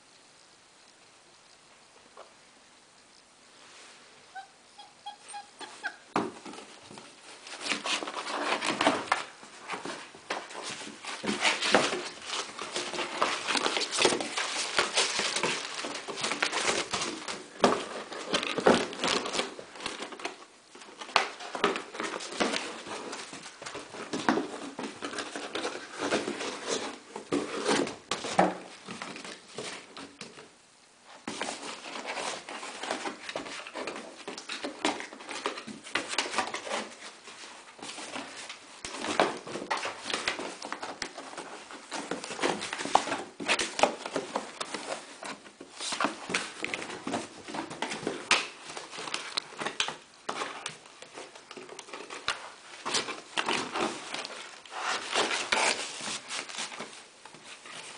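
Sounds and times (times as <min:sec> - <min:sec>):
puppy scrabbling at cardboard box: 0:05.8 - 0:20.4, 0:21.0 - 0:30.4, 0:31.3 - 0:57.9.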